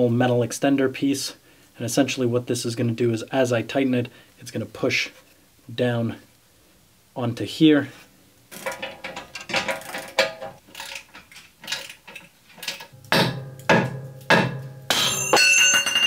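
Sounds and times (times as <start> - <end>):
hammer striking ringing steel disc: 12.9 - 16.0.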